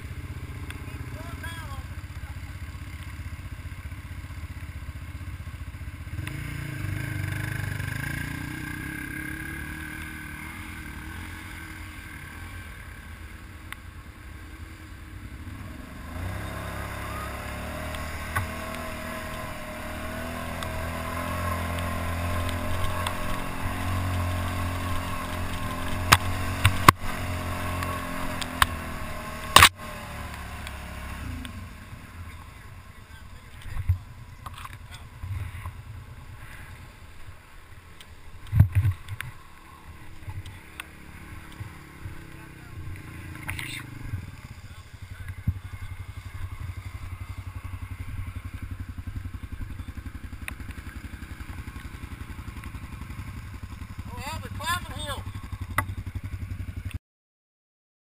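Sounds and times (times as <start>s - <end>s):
quad engine running: 0.0s - 57.0s.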